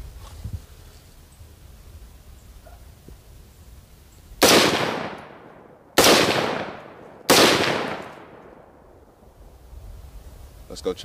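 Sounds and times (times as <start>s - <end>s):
rifle shots with echo: 4.4s - 9.2s.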